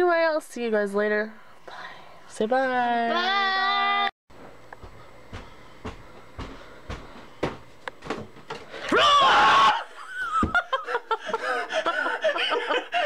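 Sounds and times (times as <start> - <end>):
soft footsteps: 4.3 - 8.7
person screaming: 8.9 - 9.9
breathless laughing: 10.6 - 13.0.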